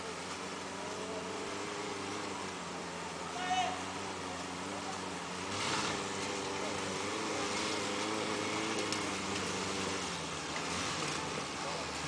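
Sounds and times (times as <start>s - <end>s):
off-road car engine running: 0.0s - 12.0s.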